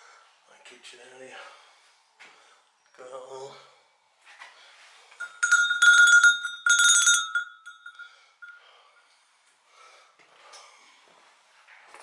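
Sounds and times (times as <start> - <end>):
small metal bell ringing: 5.2 - 8.8.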